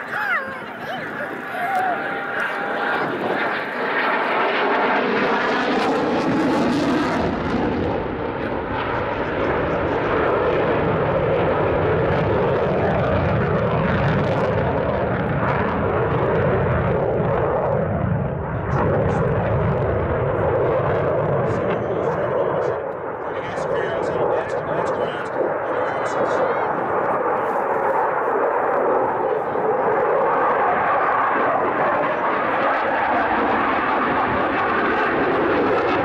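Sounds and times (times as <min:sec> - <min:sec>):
fighter jet flying past: 0:00.0 - 0:36.0.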